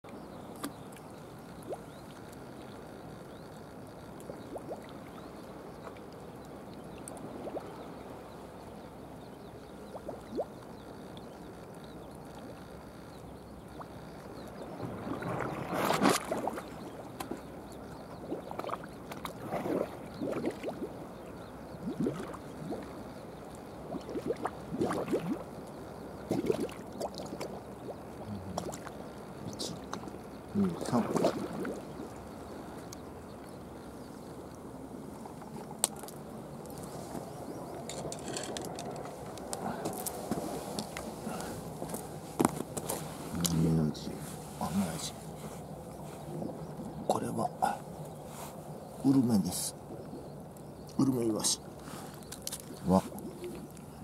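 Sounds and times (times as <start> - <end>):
sea water lapping: 1.4 - 8.6, 13.6 - 50.3
splashes and knocks: 14.8 - 17.4, 30.8 - 31.8.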